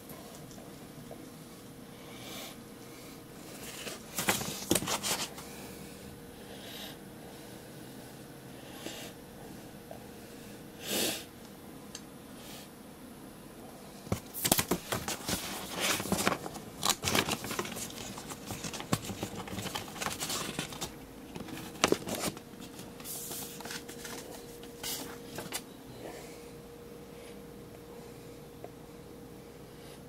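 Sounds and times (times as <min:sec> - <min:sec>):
packaging rustling and crinkling: 0:03.5 - 0:05.3, 0:14.1 - 0:25.6.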